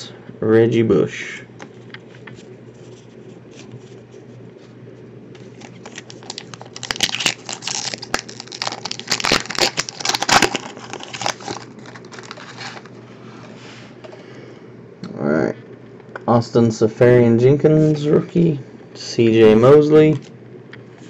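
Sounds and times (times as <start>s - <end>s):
foil wrapper tearing and crinkling: 5.4s - 12.9s.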